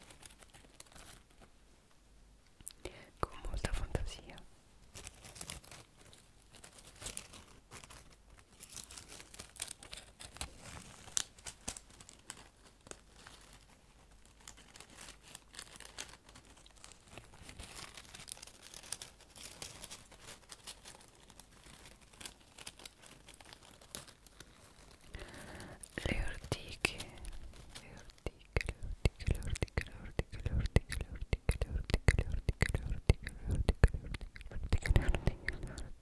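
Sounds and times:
dry leaves crackling: 0:04.9 - 0:28.5.

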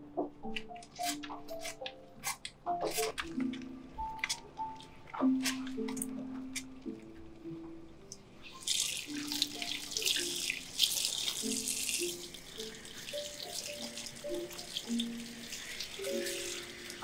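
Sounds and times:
soft slow background music: 0:00.0 - 0:17.0
water running from tap: 0:08.4 - 0:17.0.

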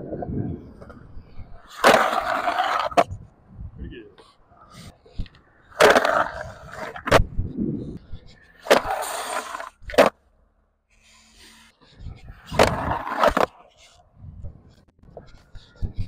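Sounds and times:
skateboard wheels rolling on concrete: 0:00.0 - 0:03.5, 0:04.6 - 0:16.0
skateboard grinding on ledge: 0:01.6 - 0:03.2, 0:05.7 - 0:07.2, 0:08.6 - 0:10.2, 0:12.3 - 0:14.0
skateboard trucks cracking on edge: 0:01.7 - 0:03.1, 0:05.7 - 0:07.2, 0:12.5 - 0:13.7.

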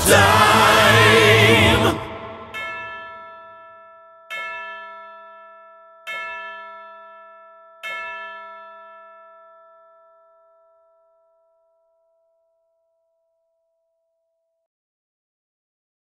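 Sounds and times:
bell ringing: 0:01.0 - 0:12.2.

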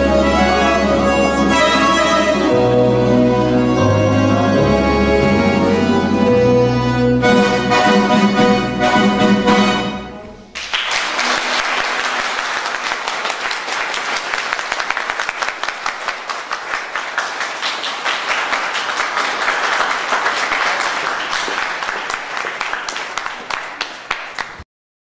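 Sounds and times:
accordion ensemble chord: 0:00.0 - 0:10.5
audience applauding: 0:10.5 - 0:24.6.

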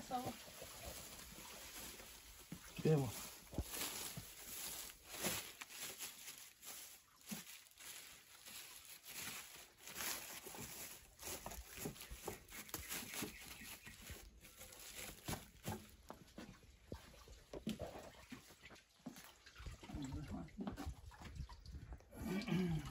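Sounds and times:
plastic sack rustling and scrunching: 0:00.0 - 0:16.3.

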